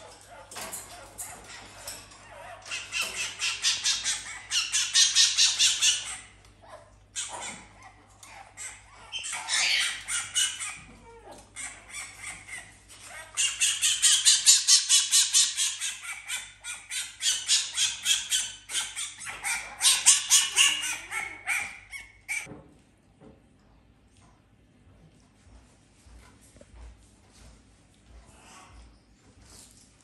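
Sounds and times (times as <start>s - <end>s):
fox yipping: 2.2s - 22.5s.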